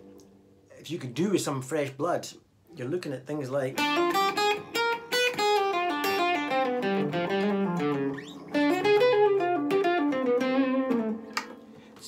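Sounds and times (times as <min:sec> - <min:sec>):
electric guitar blues lick: 0:03.8 - 0:12.0.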